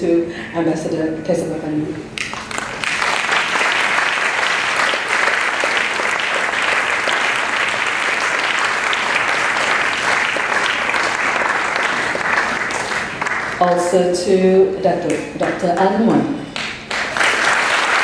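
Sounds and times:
audience applauding: 2.2 - 13.6, 16.6 - 18.0.

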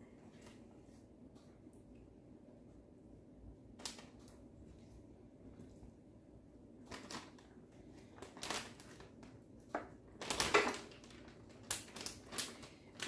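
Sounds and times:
plastic bag crinkling: 6.8 - 13.0.

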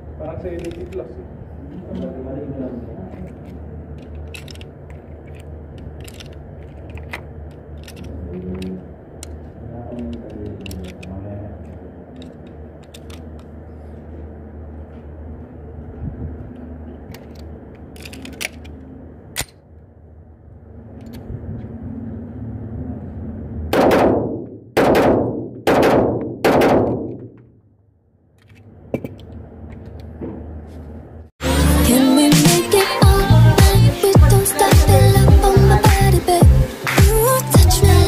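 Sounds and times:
metallic clicks of pistol handling: 0.6 - 0.9, 4.0 - 9.4, 12.2 - 13.5, 17.1 - 18.8, 19.4 - 19.6
pistol shots with echo: 23.7 - 27.2.

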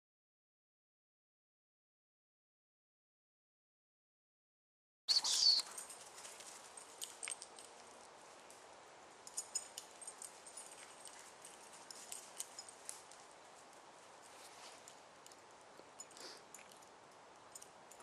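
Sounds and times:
high bird chirps: 5.1 - 5.7
shrill chirp: 5.1 - 5.7.

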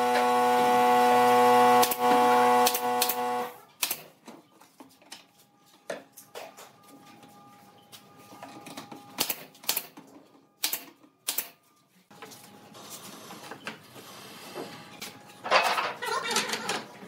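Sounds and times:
nail gun firing: 1.8 - 4.1, 9.2 - 9.9, 10.6 - 11.5.

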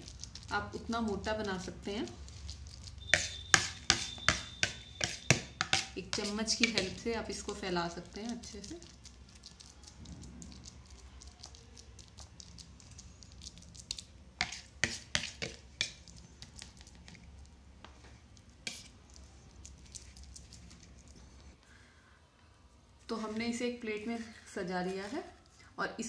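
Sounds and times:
spoon scraping a steel plate: 2.9 - 7.0, 18.6 - 18.9.

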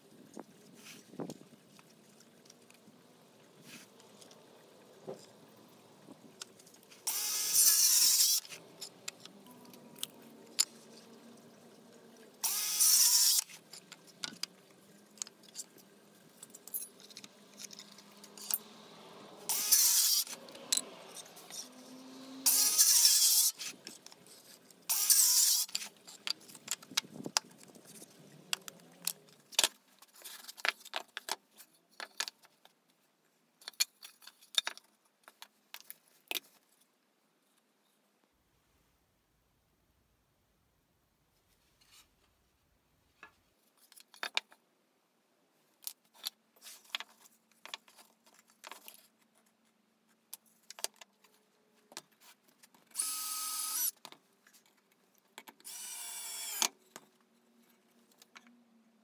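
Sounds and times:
circular saw cutting wood: 7.0 - 8.6, 12.4 - 13.6, 17.8 - 23.8, 24.9 - 25.9, 53.0 - 54.0, 55.7 - 56.7
wooden pieces clicking and knocking: 22.8 - 32.8, 43.8 - 44.6.

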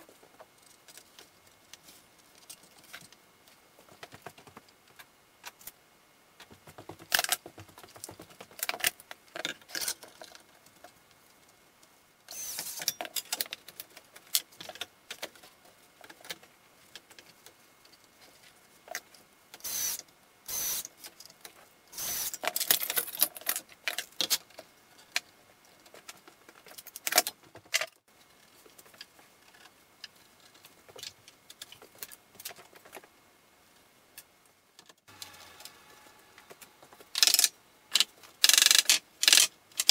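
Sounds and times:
cordless drill driving screws: 12.3 - 12.8, 19.6 - 20.8, 22.0 - 22.4.

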